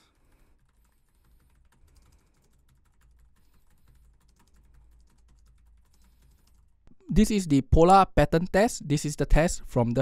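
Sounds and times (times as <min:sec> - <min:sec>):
faint keyboard typing: 0:00.0 - 0:07.0.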